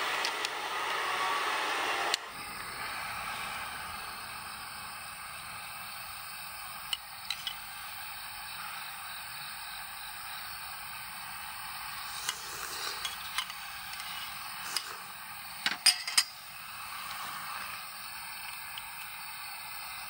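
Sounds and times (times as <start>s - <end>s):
food sizzling on a grill: 11.0s - 20.0s
cookware clinking: 15.6s - 16.4s.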